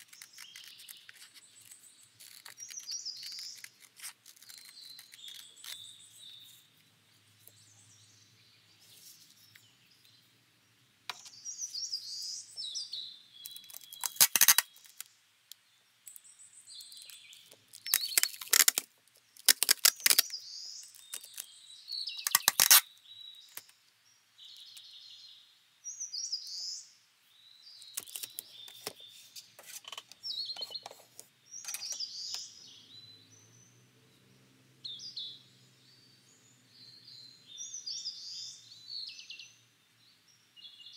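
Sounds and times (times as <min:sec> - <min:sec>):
packing tape pulled off dispenser: 0:00.0 - 0:05.9, 0:13.5 - 0:15.1, 0:17.7 - 0:20.3, 0:22.2 - 0:22.9, 0:28.0 - 0:29.0
tape torn on cutter: 0:00.0 - 0:05.9, 0:13.5 - 0:15.1, 0:17.7 - 0:20.3, 0:22.2 - 0:22.9, 0:28.0 - 0:29.0
soft high chirping: 0:00.0 - 0:10.4, 0:27.6 - 0:33.8.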